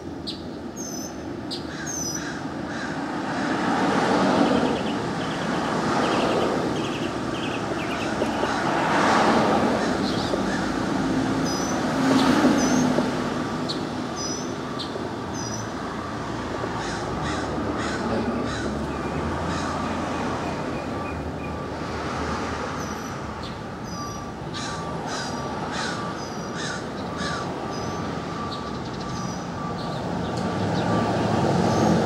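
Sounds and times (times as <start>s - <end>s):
cars passing: 0.0s - 32.0s
birds calling: 0.2s - 3.0s, 4.3s - 13.0s, 13.6s - 15.9s, 22.8s - 32.0s
birds chirping: 4.4s - 8.8s, 9.7s - 10.8s, 11.4s - 13.0s, 13.6s - 15.8s, 22.8s - 32.0s.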